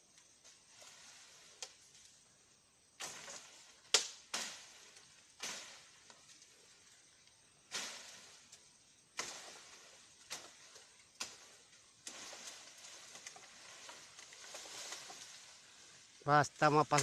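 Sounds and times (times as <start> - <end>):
dry leaves and brush crunching: 0.0 - 2.2, 2.9 - 17.0
sharp crack: 3.0 - 6.2, 7.7 - 8.4, 9.2 - 10.6, 16.8 - 17.0.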